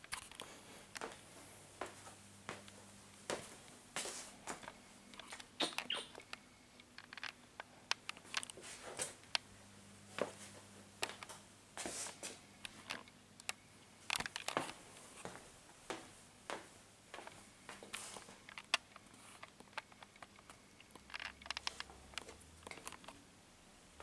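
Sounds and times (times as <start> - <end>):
handheld camera clicks and rustles: 0.0 - 1.2, 4.6 - 9.4, 12.0 - 15.3, 17.8 - 23.2
faint steady hum: 0.0 - 24.0.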